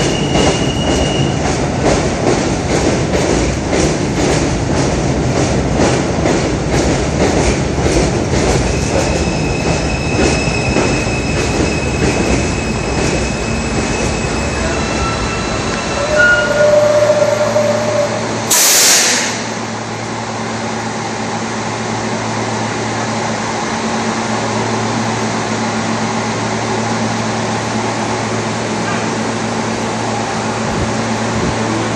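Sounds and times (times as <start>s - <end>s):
idling train hum: 0.0s - 31.9s
air hiss from train: 18.3s - 19.7s.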